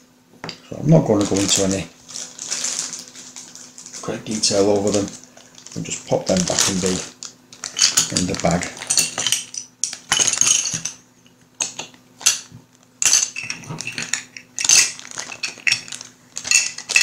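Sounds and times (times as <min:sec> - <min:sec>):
bag rustling: 0:01.1 - 0:09.4, 0:14.6 - 0:17.0
game pieces clinking and clattering: 0:13.0 - 0:17.0.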